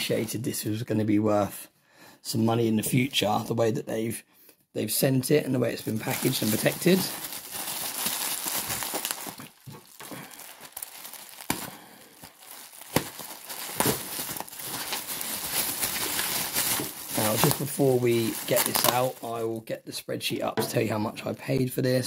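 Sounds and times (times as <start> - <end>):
bubble wrap crinkling: 5.6 - 19.6.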